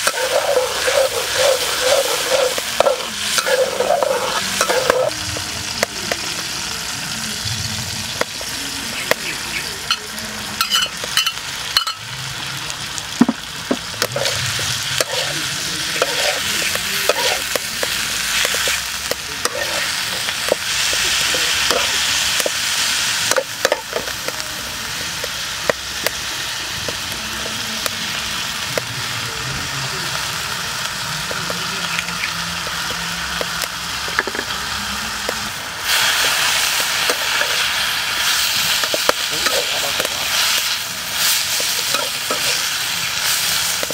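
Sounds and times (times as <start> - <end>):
metal spatula scraping a pan: 0.0 - 5.1, 9.9 - 12.0, 13.8 - 22.6
vegetables sizzling in a wok: 0.0 - 43.9.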